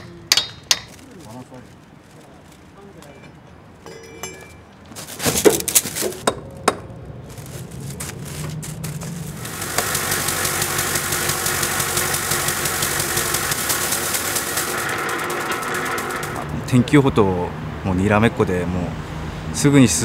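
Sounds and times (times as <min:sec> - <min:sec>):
rotating broom humming and rattling: 0:07.7 - 0:17.0.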